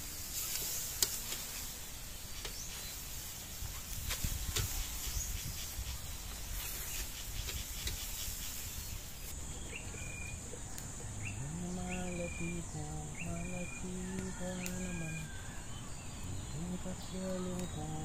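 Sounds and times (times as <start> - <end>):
meat sizzling on charcoal grill: 0.0 - 9.4
high insect buzz: 0.0 - 18.0
person humming: 11.4 - 15.3, 16.5 - 18.0.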